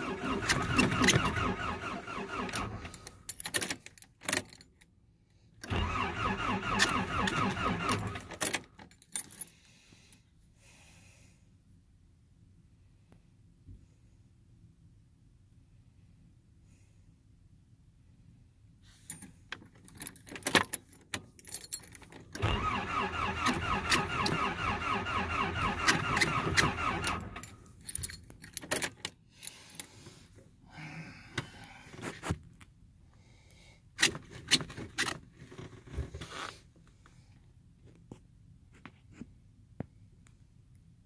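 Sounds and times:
starter motor cranking engine: 0.0s - 3.1s, 5.6s - 8.4s, 22.4s - 27.6s
keys jangling: 2.9s - 4.8s, 19.1s - 22.4s, 27.1s - 29.1s.

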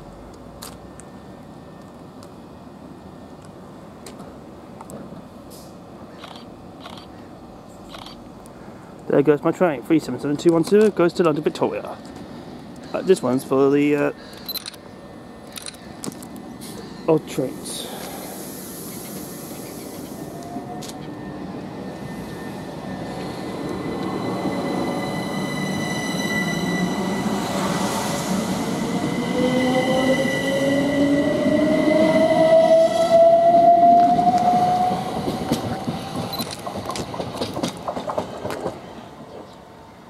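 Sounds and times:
electric train whine: 0.0s - 9.0s, 9.9s - 40.0s
wheels clicking on rails: 35.2s - 38.8s.

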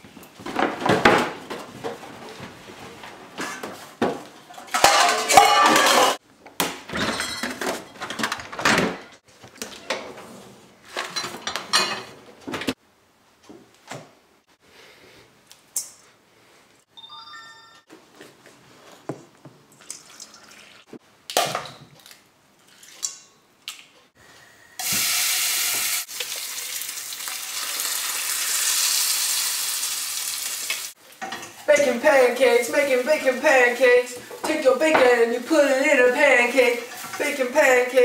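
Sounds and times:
metal bowl and containers clattering: 3.4s - 6.2s, 6.9s - 9.2s, 31.2s - 38.0s.

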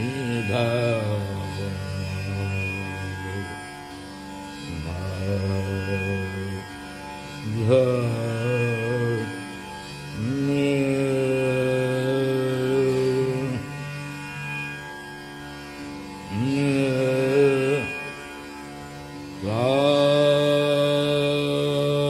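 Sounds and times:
man singing: 0.0s - 3.7s, 4.6s - 6.7s, 7.4s - 9.4s, 10.1s - 13.8s, 16.3s - 18.2s, 19.4s - 22.0s
steady drone: 0.0s - 22.0s.

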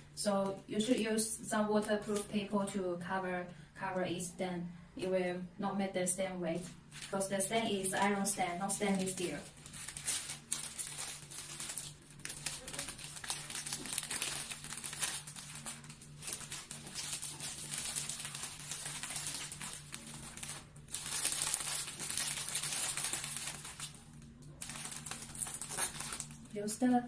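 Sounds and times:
plastic film crinkling: 6.6s - 26.6s.

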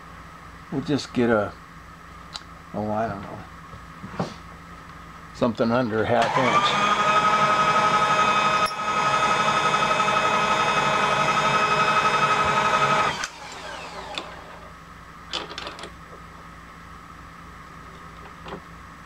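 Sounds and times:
milling machine motor whine: 6.2s - 14.7s.

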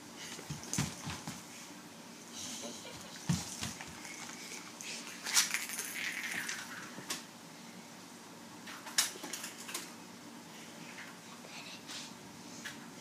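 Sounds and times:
cat scuffling: 0.2s - 1.6s.

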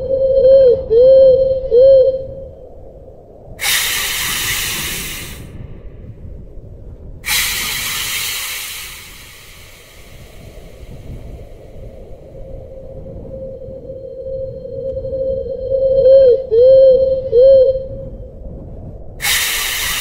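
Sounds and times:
loud hissing: 3.6s - 5.6s, 7.2s - 12.4s, 19.2s - 20.0s.

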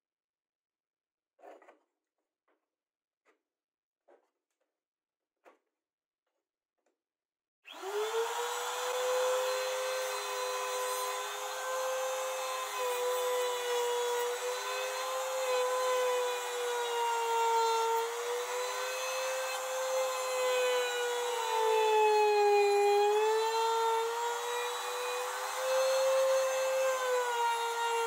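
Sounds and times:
router bit cutting wood: 7.7s - 28.0s
router motor whine: 7.7s - 28.0s.

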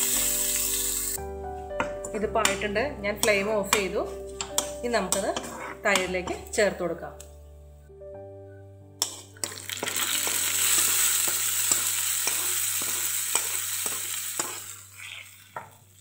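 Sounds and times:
hot oil sizzling: 0.0s - 1.3s, 9.0s - 16.0s
steel spoon scraping and tapping pan: 2.4s - 6.6s, 9.0s - 14.7s.

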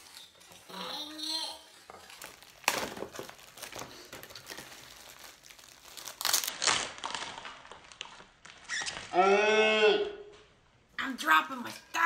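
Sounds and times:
plastic bag crinkling: 1.7s - 9.1s.

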